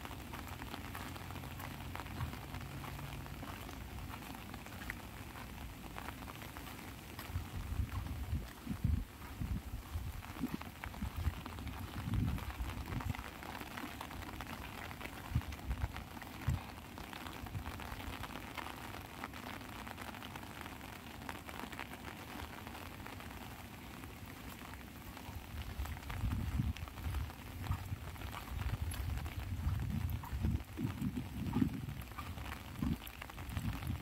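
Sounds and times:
rain pattering on umbrella: 0:00.0 - 0:34.0
dull low thumps: 0:25.6 - 0:34.0.

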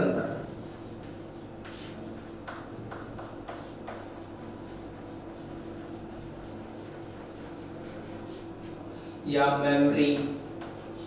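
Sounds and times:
steady low hum: 0:00.0 - 0:11.0
chalk scratching on chalkboard: 0:00.4 - 0:08.8, 0:09.9 - 0:11.0.

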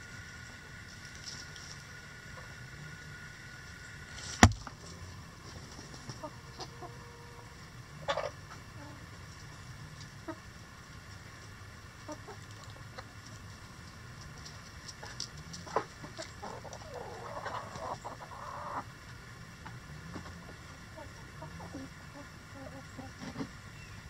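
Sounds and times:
chickens clucking: 0:05.4 - 0:24.0.

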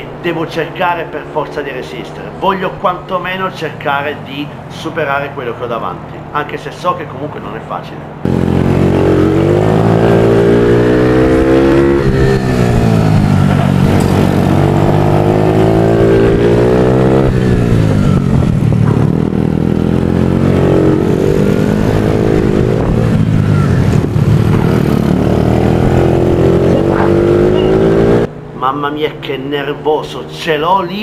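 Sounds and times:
race motorbike engine revving: 0:08.2 - 0:28.6.

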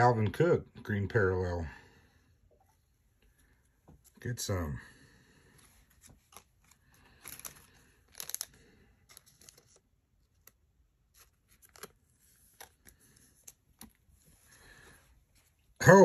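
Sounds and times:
cards clicking and rustling: 0:05.7 - 0:14.5
foil wrapper tearing: 0:07.1 - 0:09.7.

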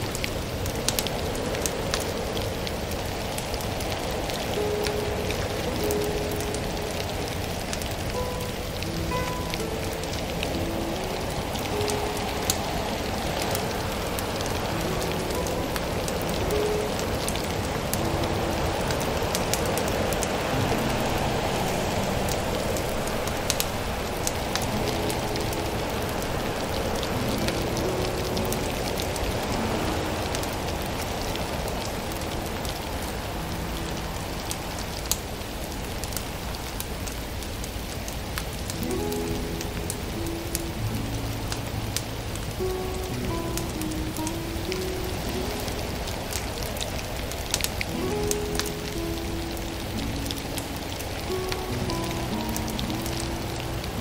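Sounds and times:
wood fire crackling and popping: 0:00.0 - 0:29.6, 0:36.8 - 0:49.0
steady hiss: 0:00.0 - 0:54.0.

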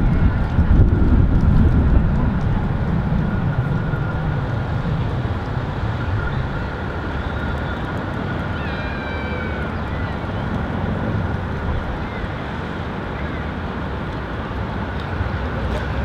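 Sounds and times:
tram rumbling on track: 0:00.0 - 0:16.0.

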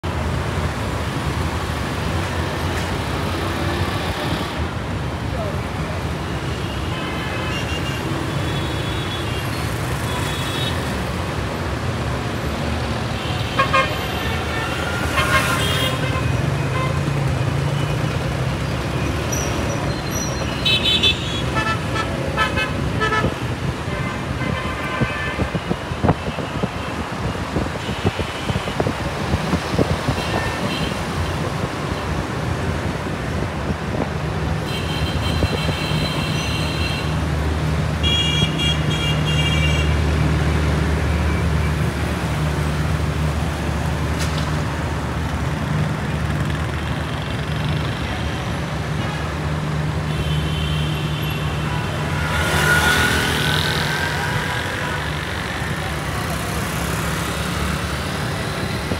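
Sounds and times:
vehicle rushing past: 0:52.0 - 0:54.7.

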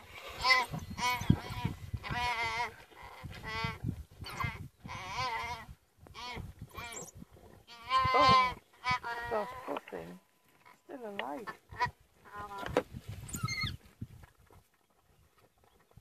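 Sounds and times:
impala bleating in distress: 0:07.7 - 0:10.1.

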